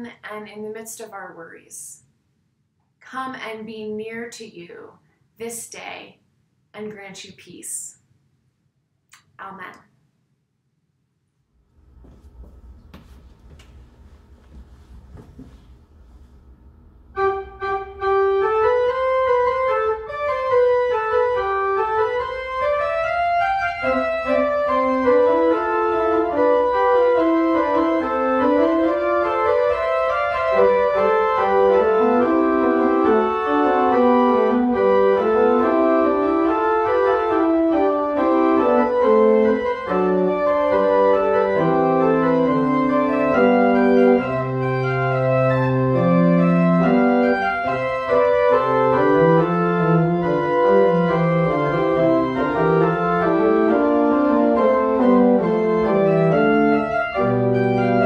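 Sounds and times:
pipe organ playing: 17.2 - 58.0.

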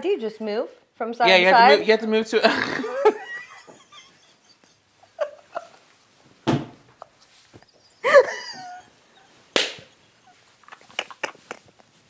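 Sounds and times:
people laughing: 2.4 - 5.9, 8.0 - 9.0
sharp slap-like hits: 9.6 - 9.9.

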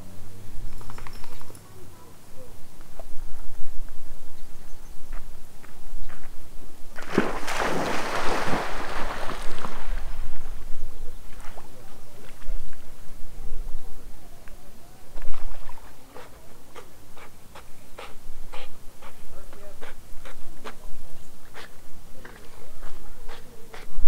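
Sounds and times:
water splashing: 7.0 - 12.8
low wind rumble: 7.6 - 15.4.

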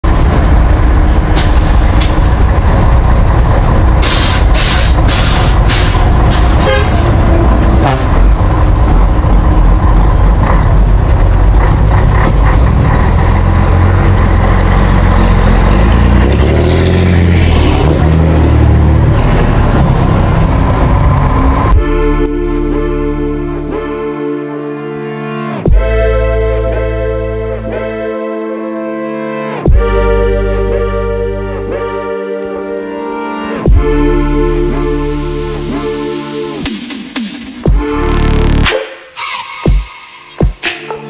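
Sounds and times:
diesel truck engine running loud: 0.0 - 24.8
air brakes hissing: 4.0 - 6.6, 38.8 - 40.3.

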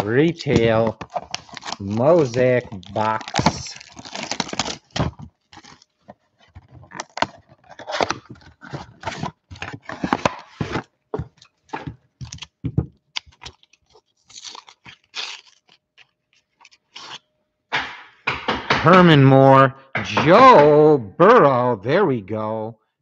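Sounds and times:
cardboard ripping: 0.0 - 12.6, 13.2 - 16.1
packs crinkling: 0.0 - 17.2.

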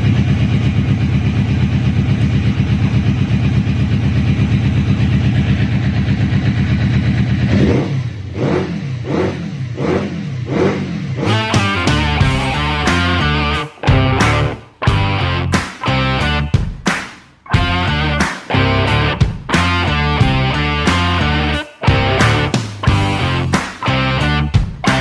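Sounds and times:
motorcycle engine idling and revving: 0.0 - 16.8, 17.6 - 25.0
rock music: 11.2 - 25.0.

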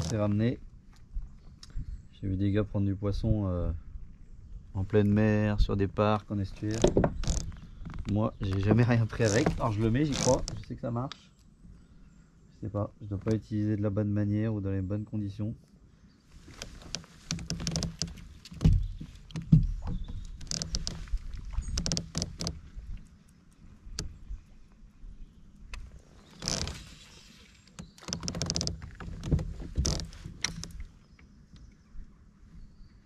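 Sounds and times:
fishing gear knocking and clicking: 6.6 - 10.7, 16.6 - 22.6, 27.8 - 30.9
rustling: 16.3 - 23.3.

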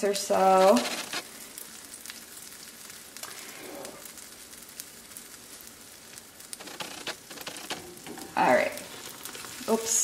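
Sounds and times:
batter sizzling in oil: 0.0 - 10.0.

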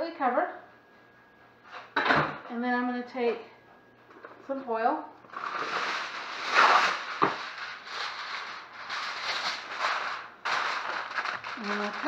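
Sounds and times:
aluminium foil crinkling: 5.3 - 12.0.

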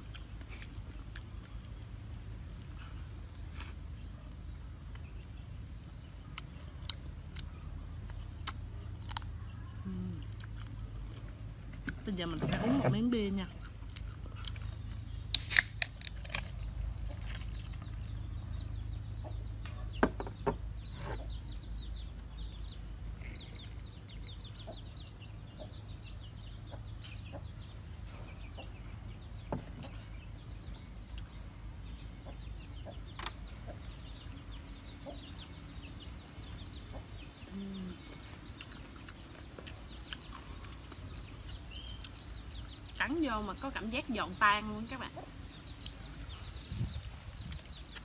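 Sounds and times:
chickens clucking: 17.0 - 43.8.

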